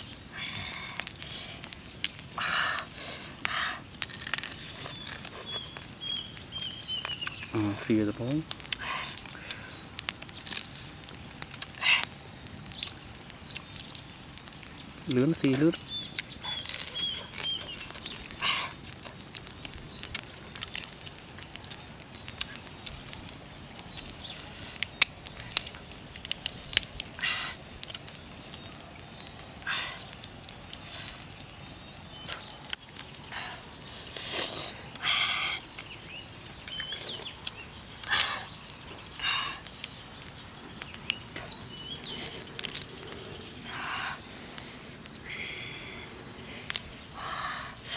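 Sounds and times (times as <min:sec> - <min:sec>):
dry leaves rustling and crackling: 0:03.0 - 0:47.9
faint bird chirps: 0:04.5 - 0:09.2, 0:12.7 - 0:18.8, 0:28.1 - 0:46.1.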